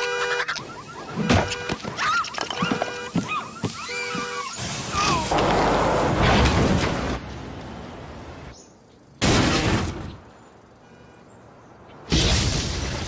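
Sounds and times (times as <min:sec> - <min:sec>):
crash through house roof: 0:05.1 - 0:07.4.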